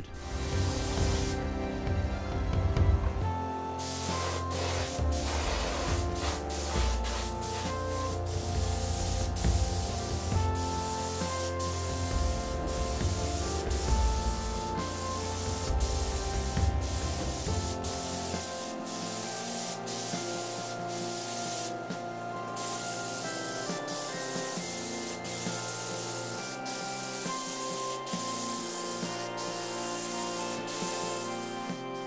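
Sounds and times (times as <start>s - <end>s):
paint spray hissing: 0.0s - 1.4s, 3.7s - 32.0s
background music: 0.0s - 32.0s.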